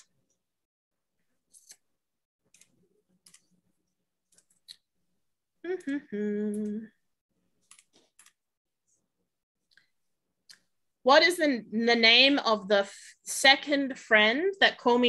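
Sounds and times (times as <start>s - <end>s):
person humming: 5.6s - 7.0s.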